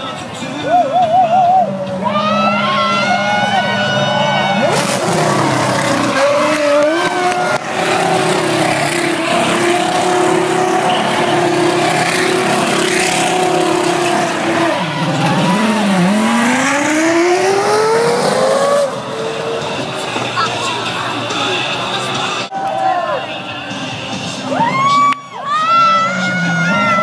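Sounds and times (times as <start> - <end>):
racing car engine revving: 1.6 - 22.5.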